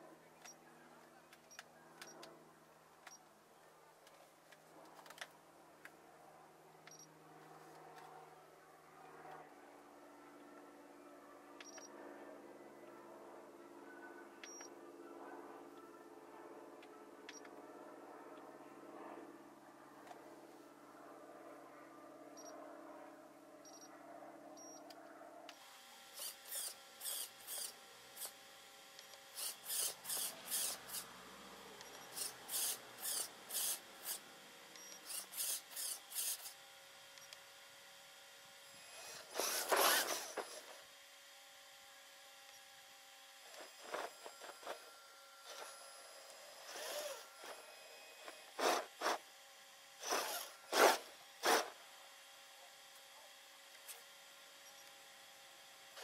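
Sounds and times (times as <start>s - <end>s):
toy car motors whirring: 25.5s - 56.0s.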